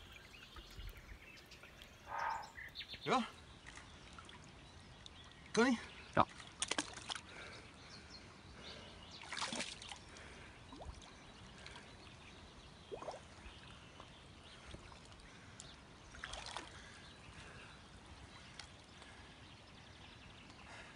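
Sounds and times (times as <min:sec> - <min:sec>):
river water sloshing: 0:06.2 - 0:07.7, 0:09.1 - 0:19.0.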